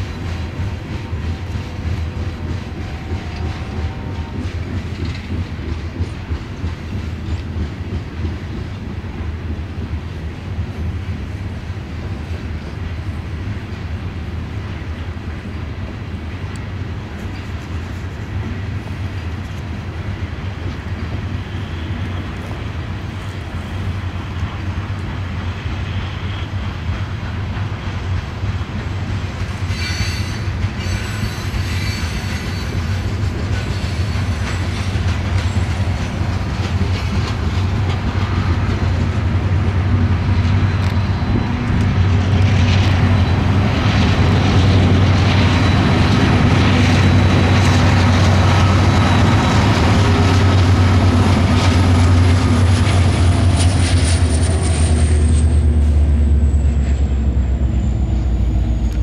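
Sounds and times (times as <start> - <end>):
train wheels clicking and squealing: 0.0 - 59.0
low diesel drone: 34.9 - 59.0.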